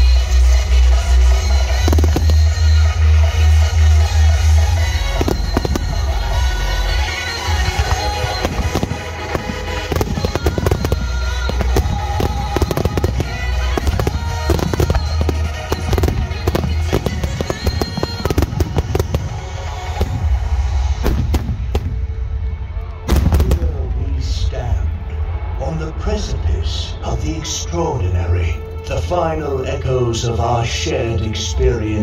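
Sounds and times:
background music: 0:00.0 - 0:32.0
firework shells bursting: 0:01.8 - 0:02.8, 0:05.1 - 0:20.4.

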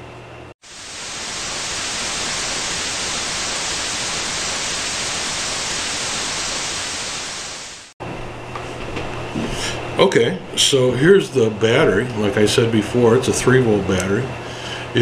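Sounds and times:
television static hiss: 0:00.6 - 0:07.9.

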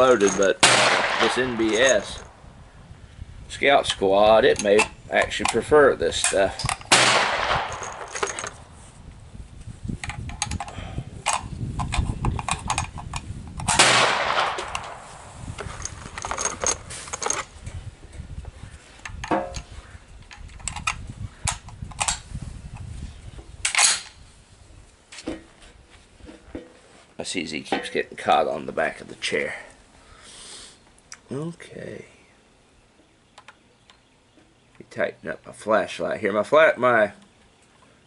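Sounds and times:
faint gunshots: 0:00.6 - 0:01.8, 0:06.9 - 0:07.8, 0:13.8 - 0:15.0
loud gunshots with echo: 0:00.6 - 0:01.8, 0:06.9 - 0:07.8, 0:13.8 - 0:15.0
clicks: 0:33.3 - 0:34.0.

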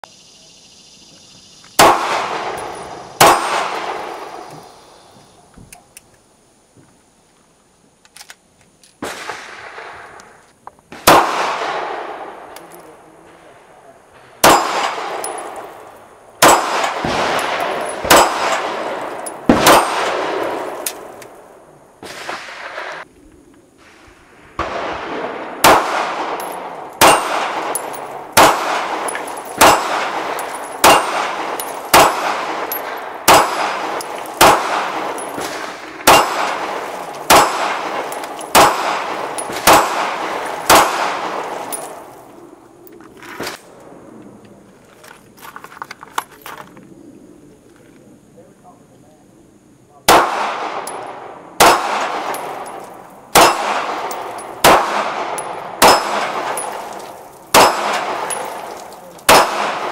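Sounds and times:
pistol shots: 0:01.8 - 0:04.8, 0:10.9 - 0:13.4, 0:14.4 - 0:23.0, 0:24.6 - 0:42.1, 0:50.1 - 0:59.9
steel targets clanging: 0:55.3 - 0:59.9.

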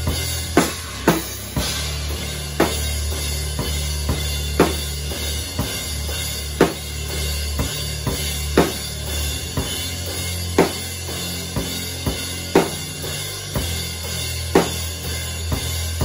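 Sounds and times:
cymbal wash: 0:00.0 - 0:16.0
drum kit playing heavy groove: 0:00.0 - 0:16.0.

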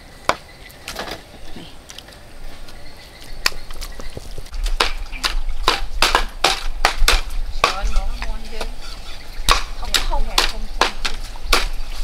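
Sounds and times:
cleavers chopping on wooden blocks: 0:03.4 - 0:08.8, 0:09.4 - 0:12.0.

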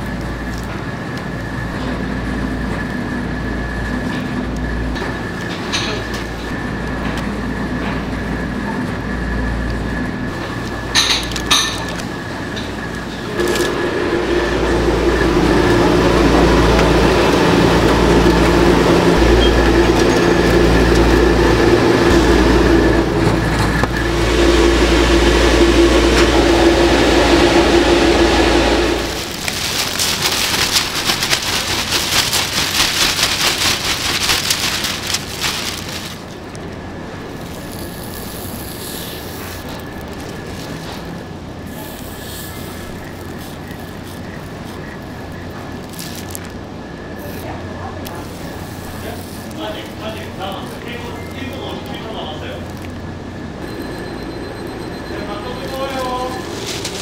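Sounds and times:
deep mechanical rumble: 0:00.0 - 0:57.0
dense crackling: 0:14.8 - 0:47.5, 0:54.6 - 0:57.0.

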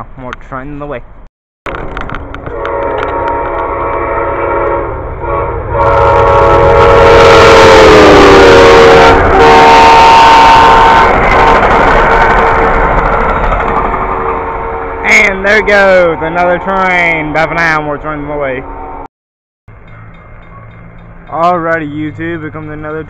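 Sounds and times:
train cars rushing past: 0:01.7 - 0:19.1, 0:19.7 - 0:23.0
locomotive horn: 0:02.4 - 0:13.1, 0:14.0 - 0:17.4.

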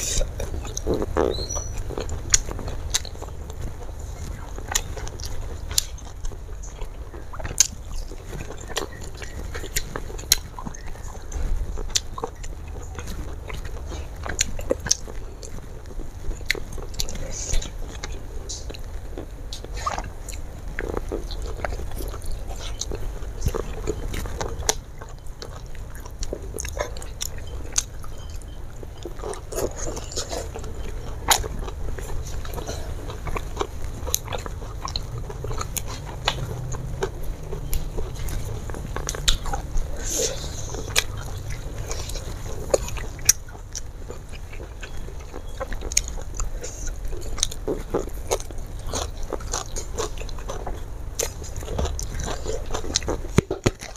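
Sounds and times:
chewing food: 0:00.0 - 0:53.9
food crunching: 0:00.0 - 0:53.9
low hum: 0:00.0 - 0:53.9
wet mouth clicks and smacks: 0:19.5 - 0:53.9.

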